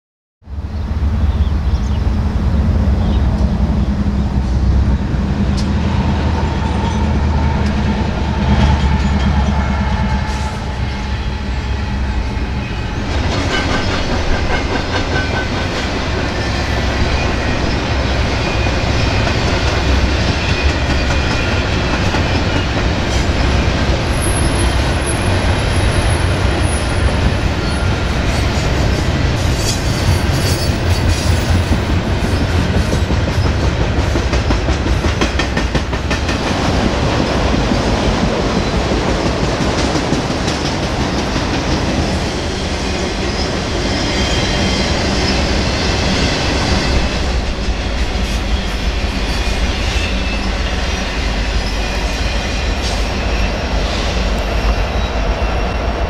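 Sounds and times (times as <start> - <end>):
freight train wheels clacking: 2.1 - 56.0
high wheel squeal: 16.3 - 32.8, 42.1 - 56.0.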